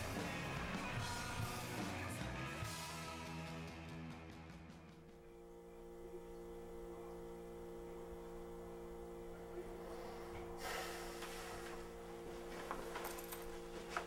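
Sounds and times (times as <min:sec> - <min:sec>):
low hum of held tones: 0:05.0 - 0:14.0
hiss: 0:09.9 - 0:11.8.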